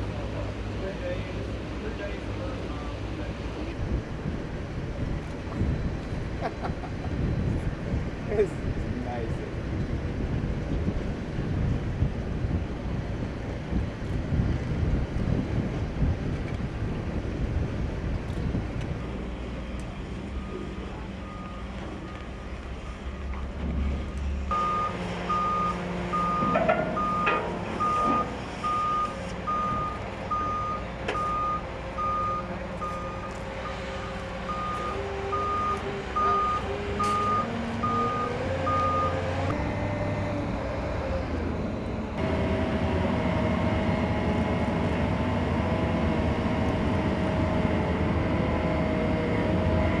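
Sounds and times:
diesel machinery drone: 0.0 - 50.0
backup alarm beeping: 20.3 - 23.4, 24.5 - 33.4, 34.5 - 39.2
sharp metal knocks: 26.4 - 28.3.

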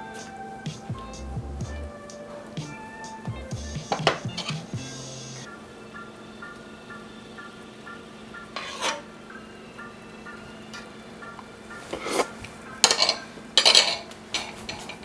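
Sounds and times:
spoon scraping skillet: 8.6 - 9.1, 11.8 - 15.0.

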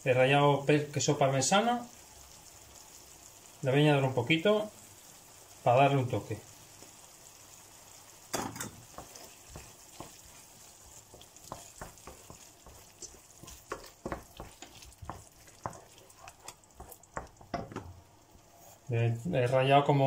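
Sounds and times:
sauce sizzling: 0.0 - 20.0
spoon scraping a frying pan: 8.4 - 17.8.

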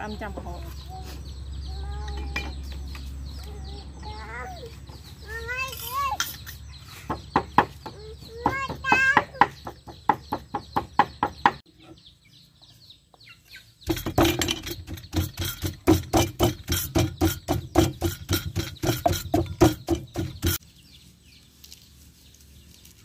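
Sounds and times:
cleaver chopping on wooden board: 13.9 - 20.6
pestle pounding in mortar: 13.9 - 20.6.

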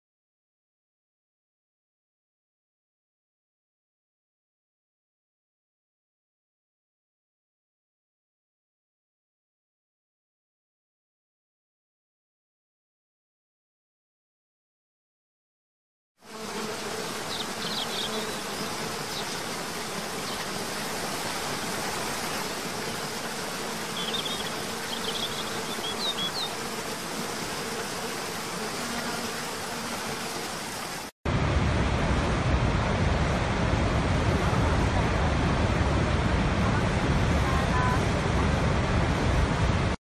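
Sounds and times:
faint buzz: 16.2 - 31.1
high bird-like chirps: 24.0 - 26.5.

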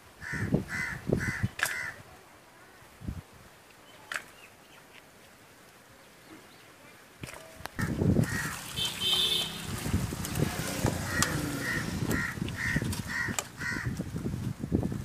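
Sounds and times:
bird calling: 7.8 - 14.0.

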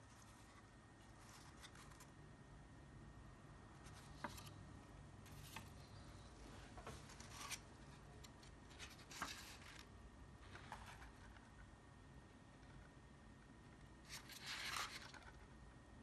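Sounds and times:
paper rustling: 0.1 - 2.1, 3.8 - 4.6, 6.8 - 11.5, 14.1 - 15.4.

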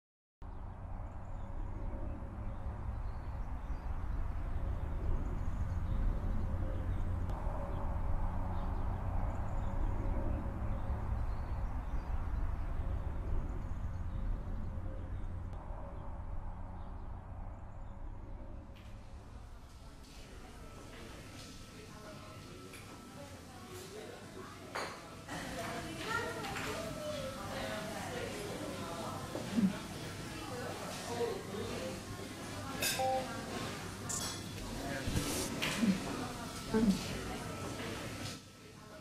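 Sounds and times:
low rumble: 0.4 - 20.5.

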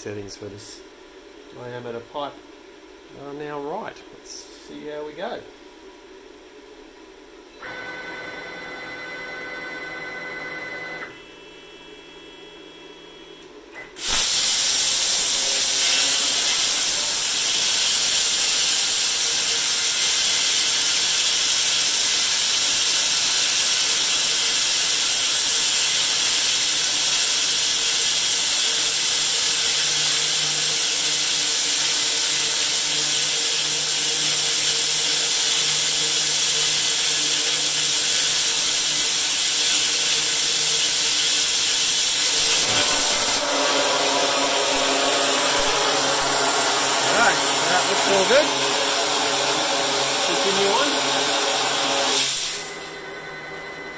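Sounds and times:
plasma cutter hissing: 14.0 - 53.0.

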